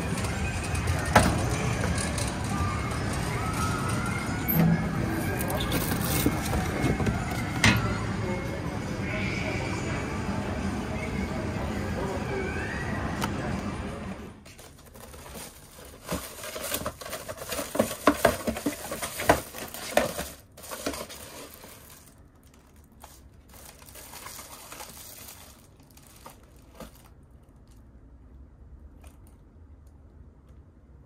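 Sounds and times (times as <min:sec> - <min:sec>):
plastic bag crinkling: 0:14.5 - 0:27.8.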